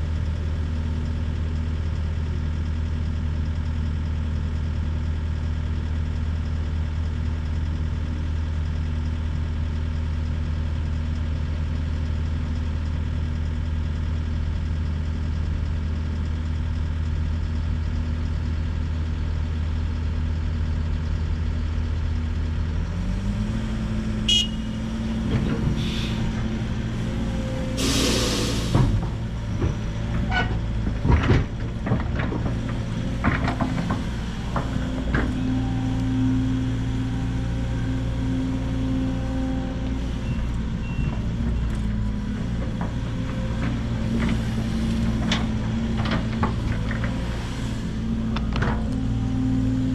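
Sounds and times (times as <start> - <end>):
diesel engines idling: 0.0 - 49.9
air brakes hissing: 25.7 - 26.4, 27.7 - 29.0
metal clanks and knocks: 28.7 - 35.4.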